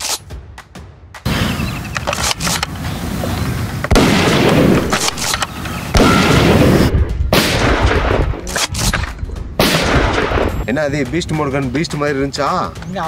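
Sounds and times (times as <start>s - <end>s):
gunshot booms with rumble: 3.9s - 5.0s, 6.0s - 8.5s, 9.6s - 10.6s
sharp gunshot cracks: 3.9s - 9.0s, 9.6s - 10.6s.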